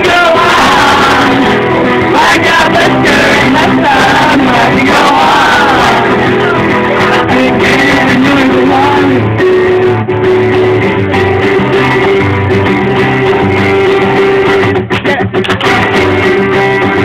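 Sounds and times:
man singing: 0.0s - 12.1s
acoustic guitar: 0.0s - 17.0s.

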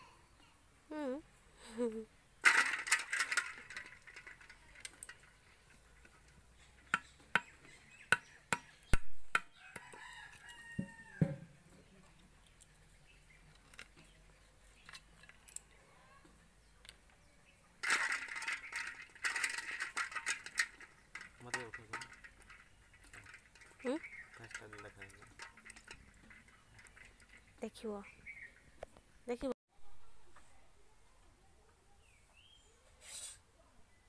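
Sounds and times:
hand stirring water in pot: 2.4s - 8.8s, 17.8s - 27.8s
rooster crowing: 9.5s - 11.5s.

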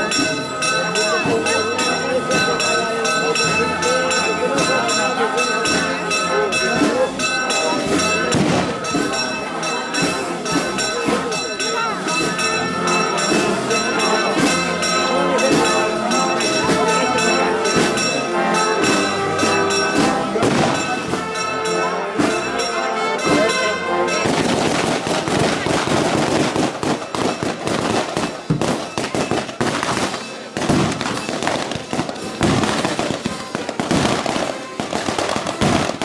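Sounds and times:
brass band playing a march: 0.0s - 36.0s
firecrackers crackling: 24.2s - 36.0s.

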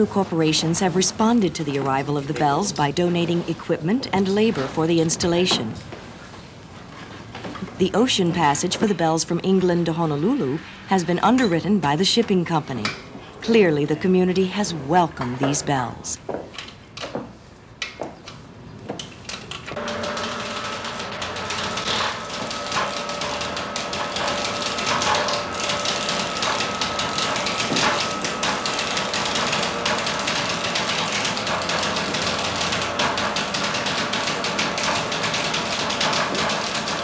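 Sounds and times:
hoist mechanical whine: 19.8s - 37.0s.

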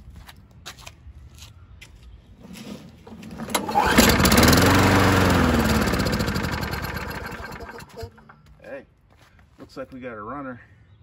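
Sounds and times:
lawnmower engine running: 3.0s - 8.4s.

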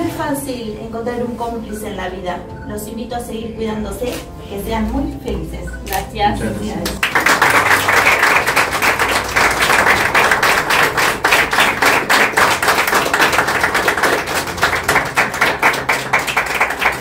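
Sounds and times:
people clapping: 6.8s - 17.0s.

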